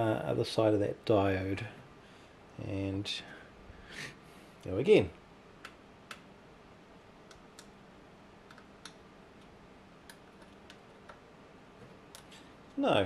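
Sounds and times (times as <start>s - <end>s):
low steady background noise: 0.0s - 13.0s
probe tips clicking on circuit board: 7.2s - 7.8s, 8.4s - 11.2s.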